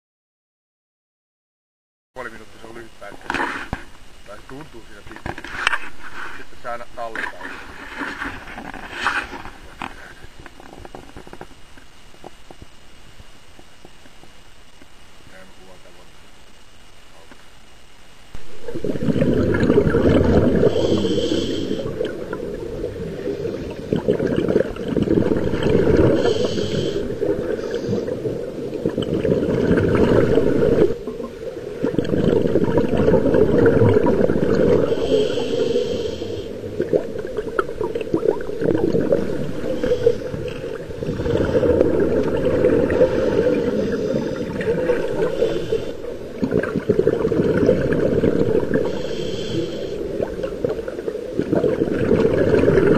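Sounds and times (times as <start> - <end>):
bubbling exhaled air: 18.4 - 52.9
regulator inhale hiss: 20.0 - 29.0, 33.8 - 46.4, 47.8 - 51.4.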